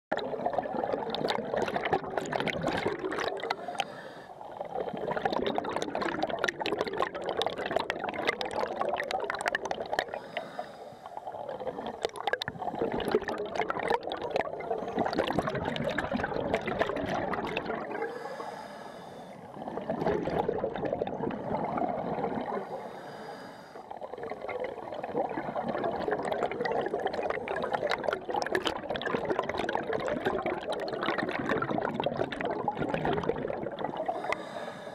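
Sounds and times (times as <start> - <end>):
exhaust bubbles underwater: 0.1 - 18.5, 19.4 - 23.0, 23.8 - 34.7
regulator inhale hiss: 3.6 - 4.4, 10.2 - 11.2, 18.1 - 19.4, 22.7 - 23.9, 34.1 - 34.9.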